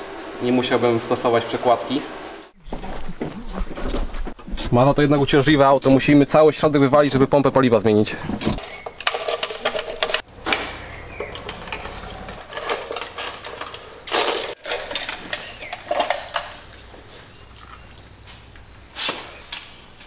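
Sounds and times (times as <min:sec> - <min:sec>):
scraping bursts: 0:10.2 - 0:14.6.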